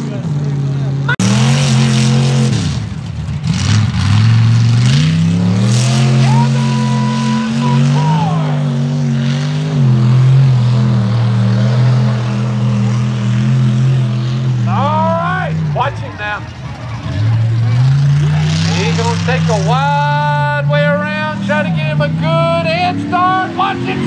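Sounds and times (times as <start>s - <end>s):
truck engine at full throttle: 0.0s - 24.0s.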